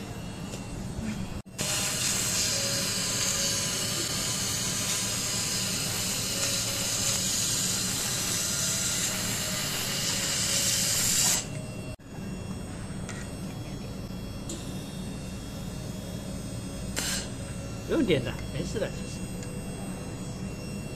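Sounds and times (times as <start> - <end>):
low machine hum: 0.0 - 20.9
laser welder hissing: 1.4 - 11.5, 16.8 - 19.7.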